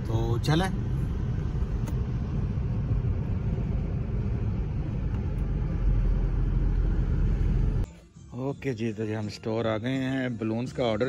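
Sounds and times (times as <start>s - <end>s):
car cabin road and engine rumble: 0.0s - 7.9s.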